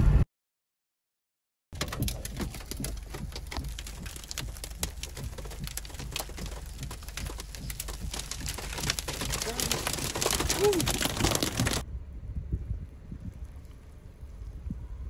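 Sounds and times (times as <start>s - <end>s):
ice pellets ticking on a vehicle: 1.8s - 11.8s
low steady rumble: 1.8s - 15.0s.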